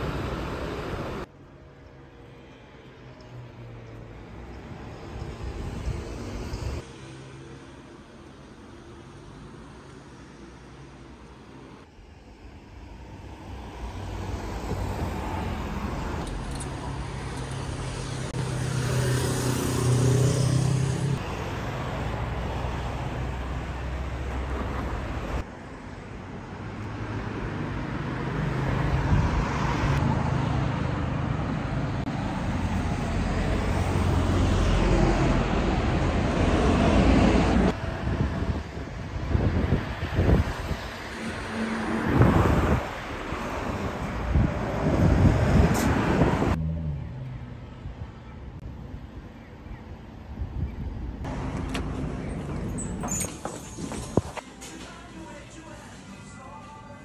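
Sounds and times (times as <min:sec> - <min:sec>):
cars passing: 0:00.0 - 0:50.2, 0:51.0 - 0:57.0.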